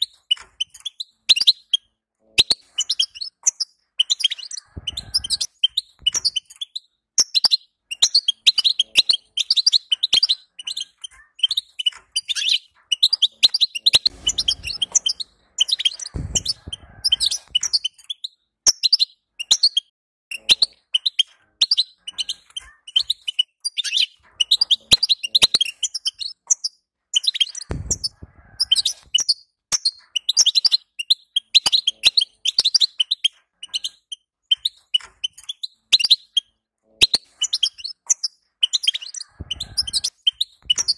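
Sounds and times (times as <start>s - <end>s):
soft low thuds: 16.1s - 17.5s, 27.7s - 28.4s.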